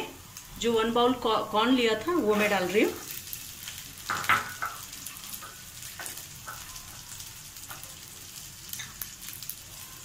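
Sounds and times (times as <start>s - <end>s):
corn kernels sizzling in oil: 0.0s - 10.0s.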